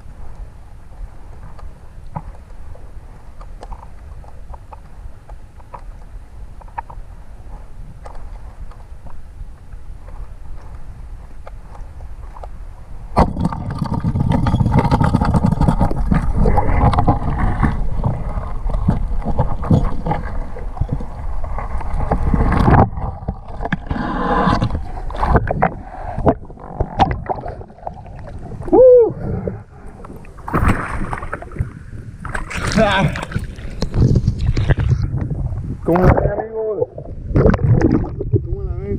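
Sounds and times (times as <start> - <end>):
water rushing and churning: 13.1 - 38.9
water splashing: 13.2 - 35.2, 35.9 - 38.6
underwater knocks: 24.5 - 28.4, 37.3 - 38.5.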